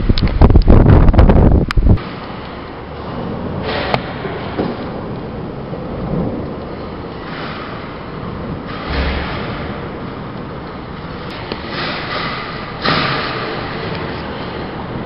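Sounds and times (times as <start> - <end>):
low rumble of thunder: 3.0 - 15.0.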